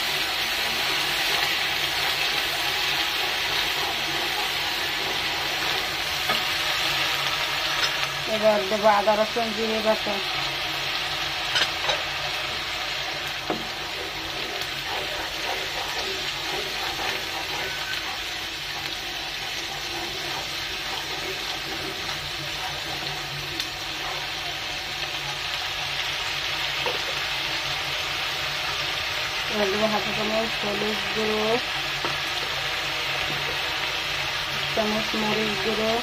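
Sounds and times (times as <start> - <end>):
paste sizzling in hot oil: 0.0 - 36.0
wooden spatula stirring: 12.6 - 25.4.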